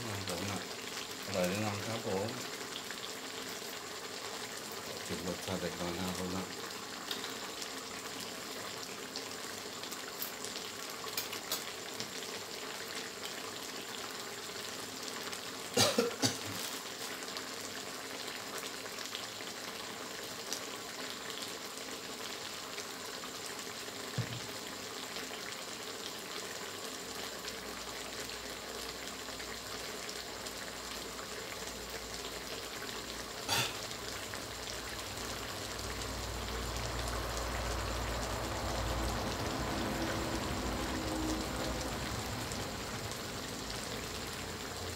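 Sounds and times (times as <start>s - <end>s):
stir-fry sizzling in a wok: 0.0s - 44.9s.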